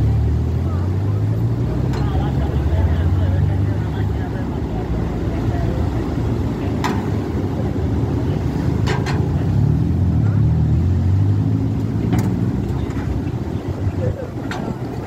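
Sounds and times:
car engines driving slowly: 0.0s - 15.0s.

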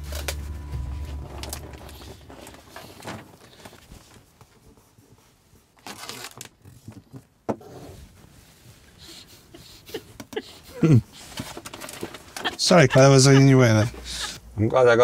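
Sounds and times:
vinyl sheet rustling and crinkling: 0.0s - 7.4s, 11.1s - 14.2s.

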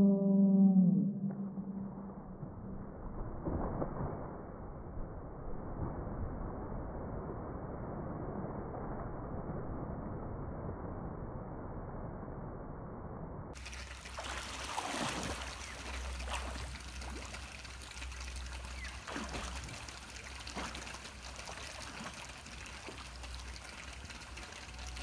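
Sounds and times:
pool water splashing: 13.6s - 25.0s.

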